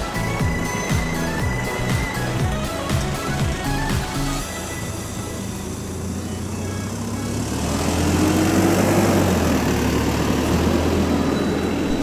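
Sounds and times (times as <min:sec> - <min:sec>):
vehicle engine passing: 0:04.6 - 0:12.0.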